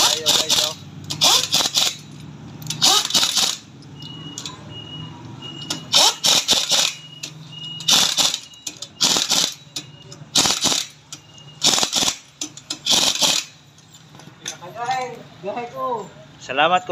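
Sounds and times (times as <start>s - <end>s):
pneumatic impact wrench: 0.0s - 3.7s, 5.6s - 13.7s.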